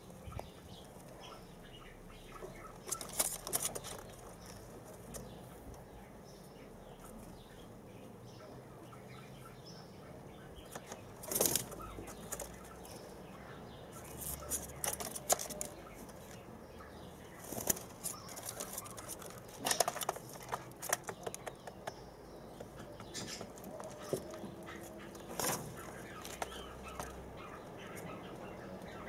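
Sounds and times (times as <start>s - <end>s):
chicks flapping wings: 10.7s - 12.8s, 14.0s - 16.4s, 17.3s - 22.0s, 22.6s - 28.2s.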